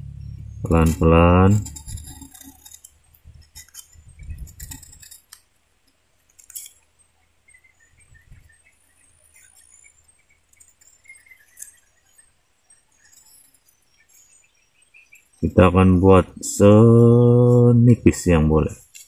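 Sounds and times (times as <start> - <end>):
knife scraping bamboo: 0.8 - 5.5.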